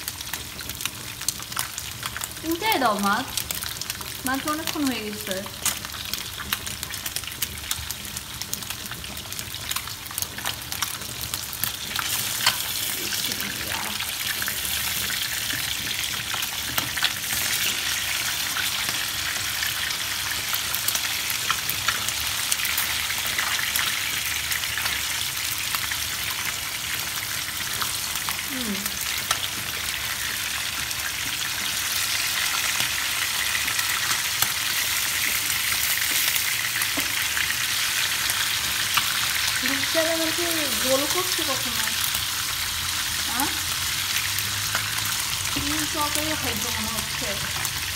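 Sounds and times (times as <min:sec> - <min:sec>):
fish frying in hot oil: 0:00.0 - 0:47.9.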